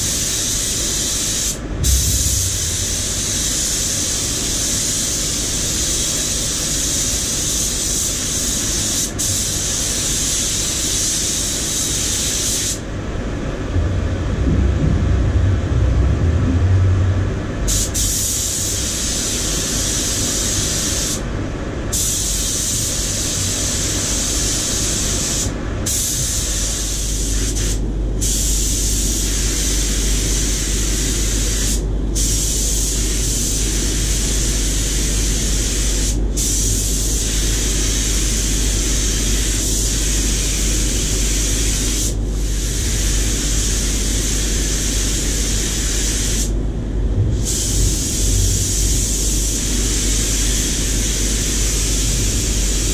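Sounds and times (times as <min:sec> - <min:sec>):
paint spray gun hissing: 0:00.0 - 0:12.8, 0:17.7 - 0:21.2, 0:21.9 - 0:46.5, 0:47.4 - 0:52.9
low steady hum: 0:01.6 - 0:03.9, 0:12.8 - 0:19.3, 0:46.6 - 0:50.6.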